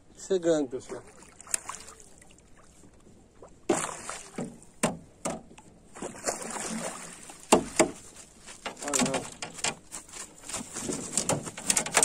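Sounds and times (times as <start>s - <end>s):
fish splashing at surface: 3.7s - 4.6s, 6.0s - 7.8s.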